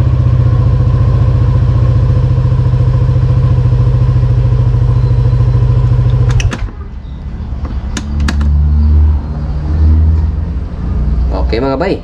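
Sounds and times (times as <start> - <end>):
scooter engine idling: 0.0 - 8.5.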